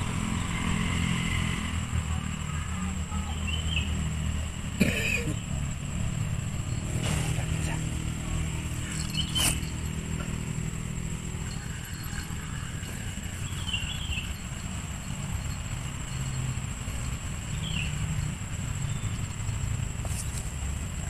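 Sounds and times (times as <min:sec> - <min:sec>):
low motor rumble: 0:00.0 - 0:21.0
high chirps: 0:06.5 - 0:20.4.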